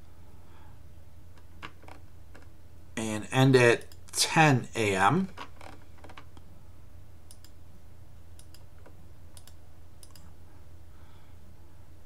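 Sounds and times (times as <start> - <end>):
faint steady low hum: 0.0 - 12.0
computer mouse clicking: 7.3 - 7.6, 8.4 - 10.3.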